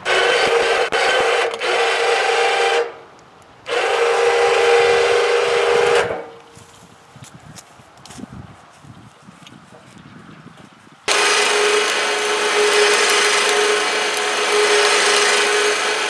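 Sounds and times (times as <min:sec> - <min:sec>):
log loader motor whining: 0:00.0 - 0:06.6, 0:11.1 - 0:16.0.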